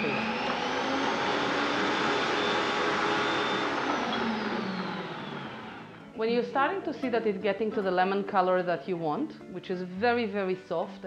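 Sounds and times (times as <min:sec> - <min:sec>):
stand mixer motor whining: 0:00.0 - 0:06.2.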